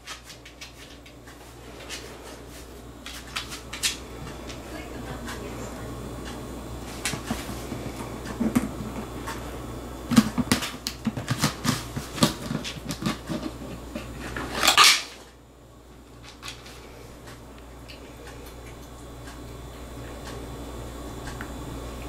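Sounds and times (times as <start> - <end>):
cat eating kibble: 16.2 - 22.0.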